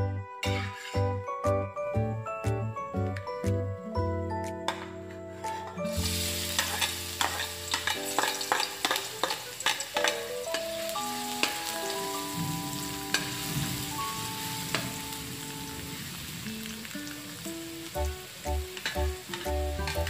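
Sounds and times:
metal spatula scraping a wok: 0.4 - 1.2, 5.4 - 11.7, 18.8 - 20.0
garlic sizzling in a wok: 5.9 - 20.0.

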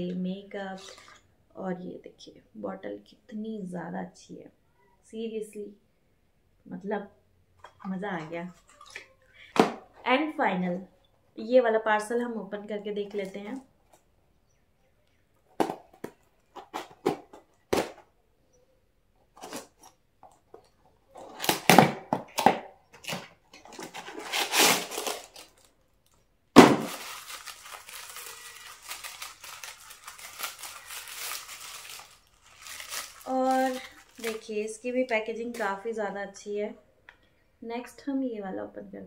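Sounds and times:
tape and cardboard tearing: 21.2 - 25.7, 26.5 - 34.4
paper wrapping crinkling: 22.9 - 35.8
box cutter slitting tape: 23.0 - 25.4.

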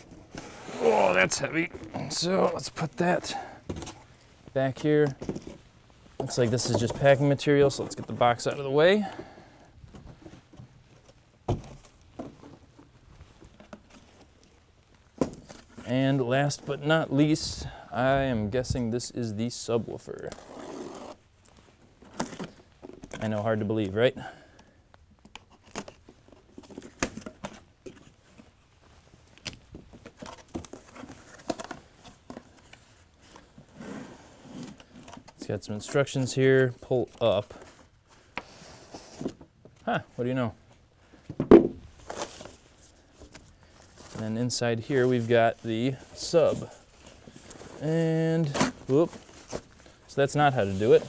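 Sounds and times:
cardboard rustling: 25.3 - 39.9, 41.1 - 51.0.

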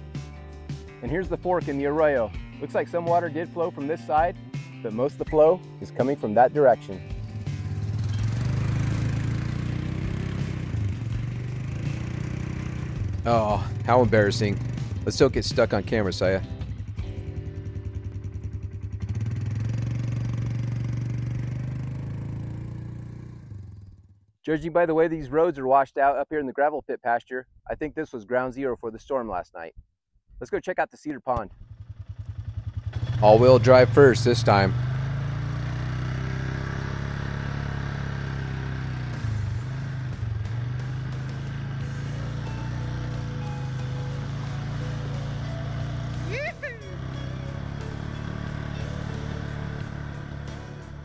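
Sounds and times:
atv engine running: 5.9 - 24.2, 31.4 - 51.0.

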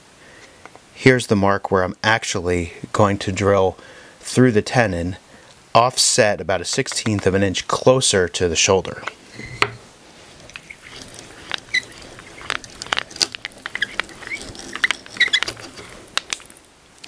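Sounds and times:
drill bit squeaks: 9.3 - 9.8, 10.4 - 16.6
hand drill boring wood: 10.4 - 16.6.

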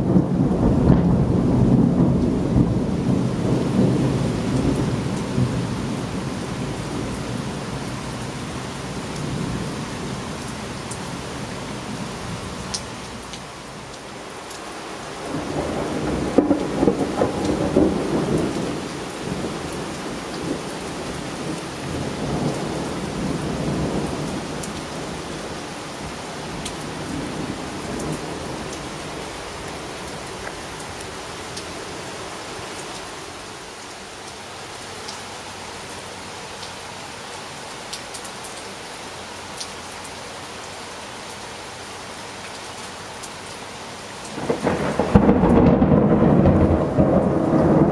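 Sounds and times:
thunder rolling: 0.0 - 6.1, 15.2 - 20.6, 44.4 - 47.9
steady rain: 0.0 - 47.9.

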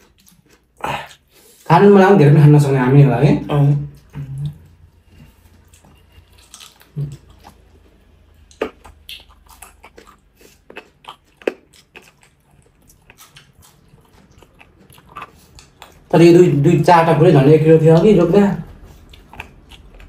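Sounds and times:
chewing with wet mouth clicks: 0.0 - 1.6, 3.9 - 16.2, 18.0 - 20.0.

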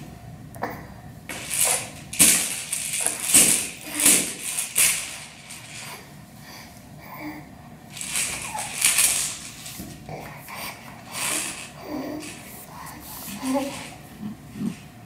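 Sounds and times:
plastic toy rattle shaking: 1.3 - 6.1, 7.9 - 9.9, 10.7 - 12.7, 13.3 - 14.0.

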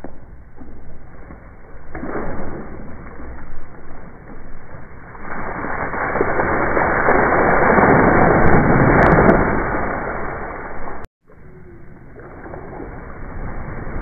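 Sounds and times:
water splashing on grass and deck: 0.0 - 11.1.

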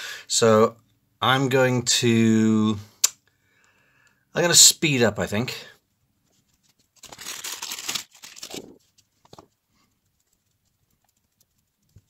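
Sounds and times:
plastic bag crinkling: 6.6 - 9.6.

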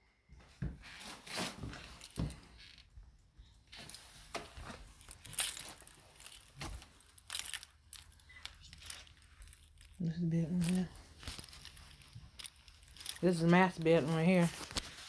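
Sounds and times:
phone handling rustles and scrapes: 3.7 - 15.0.

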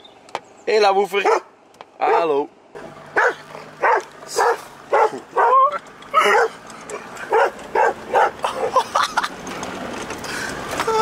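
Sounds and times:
dog barking: 1.2 - 2.4, 3.2 - 6.6, 7.3 - 8.8.

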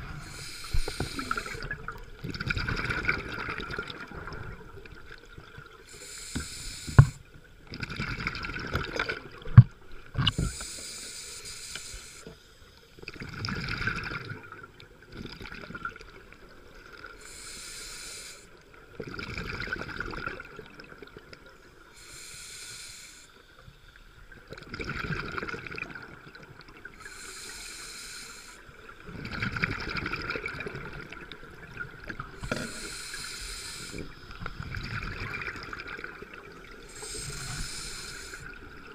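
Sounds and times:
scuba regulator breathing underwater: 0.0 - 1.8, 5.9 - 7.3, 10.3 - 12.5, 17.2 - 18.6, 21.9 - 23.5, 27.0 - 28.7, 32.4 - 35.4, 36.8 - 38.6.

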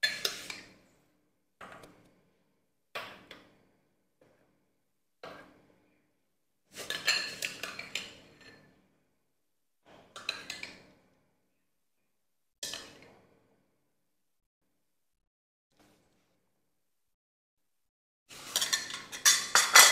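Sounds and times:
spoon clinking on ceramic bowls: 18.5 - 19.9.

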